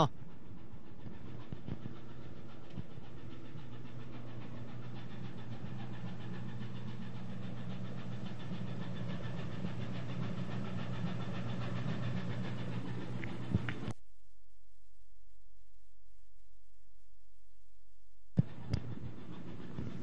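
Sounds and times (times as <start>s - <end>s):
ship engine humming: 0.0s - 13.9s, 18.4s - 20.0s.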